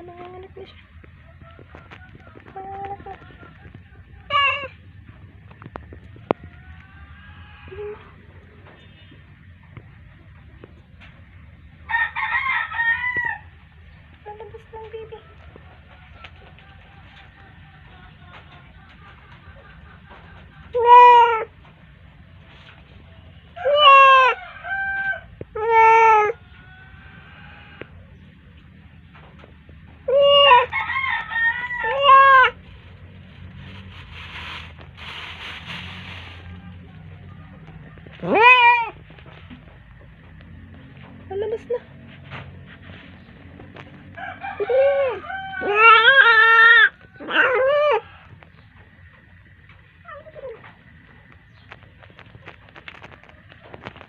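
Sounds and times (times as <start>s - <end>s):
cat meowing: 38.2s - 39.0s
cat yowling: 38.2s - 39.0s, 44.6s - 48.1s.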